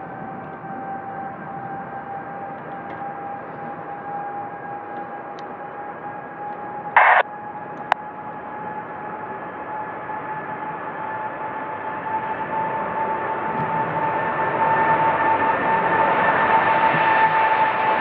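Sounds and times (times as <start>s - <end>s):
steady whining tone: 0.6s - 10.1s
burst of radio static: 7.0s - 7.2s
radio hiss: 7.0s - 7.2s.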